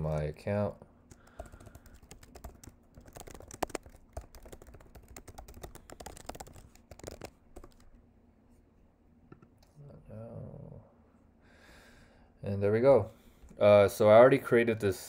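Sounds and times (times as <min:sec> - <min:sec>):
keyboard typing: 0:01.1 - 0:07.9.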